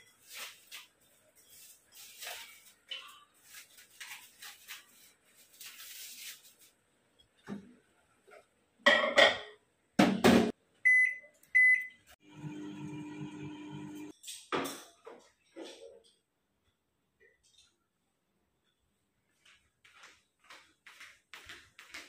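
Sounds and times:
microwave humming: 10.6s - 14.1s.

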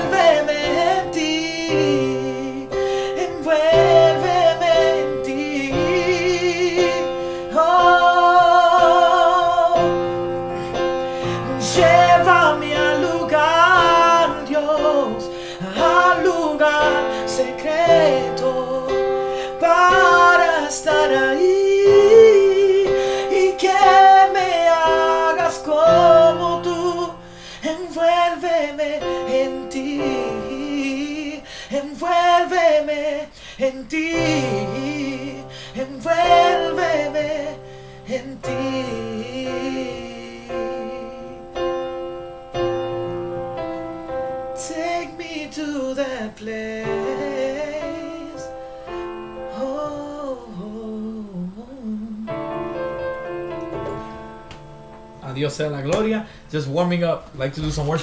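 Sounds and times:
man singing worship song: 0.0s - 41.9s, 44.5s - 53.0s
electric keyboard chords: 0.0s - 51.0s, 52.2s - 58.0s.

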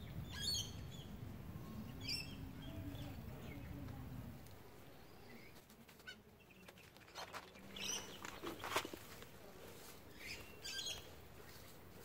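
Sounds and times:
bird chirps: 0.0s - 3.7s.

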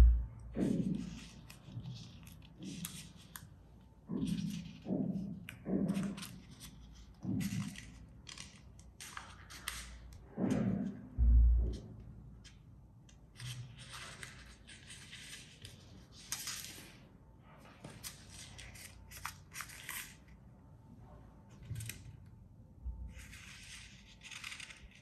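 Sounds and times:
paper money rustling and crinkling: 6.1s - 10.0s, 13.3s - 17.0s.

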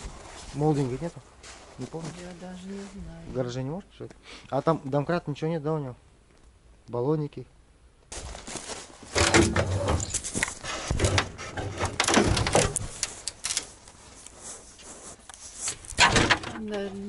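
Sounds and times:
metal clunks and clatter: 9.1s - 12.9s, 16.0s - 16.7s.

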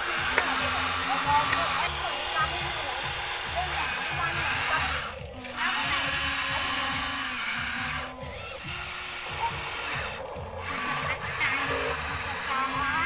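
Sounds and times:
toy excavator motors whirring: 0.0s - 13.0s.

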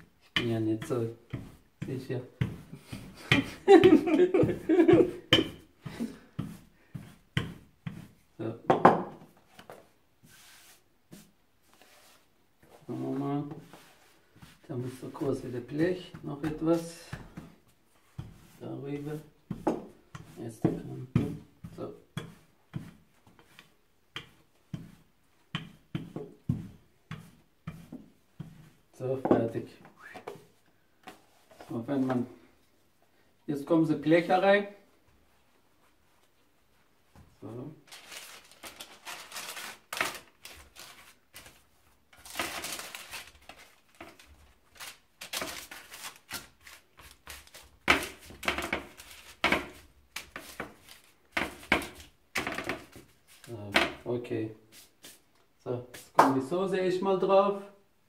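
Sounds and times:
rolling pin knocking on countertop: 8.7s - 9.2s
baking paper rustling on tray: 10.2s - 19.4s, 37.8s - 53.6s.

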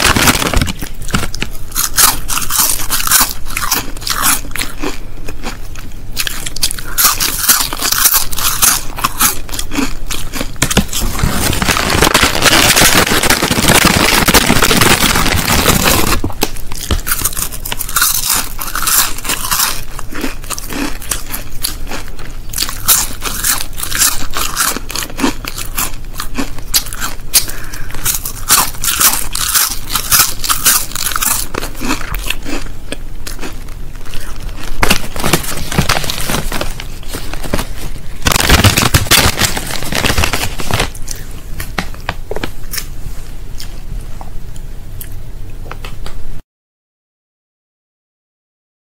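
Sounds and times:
plastic packet crackling: 0.0s - 4.4s, 6.3s - 21.4s, 33.3s - 42.8s
crisps crunching and chewing: 0.0s - 42.9s.

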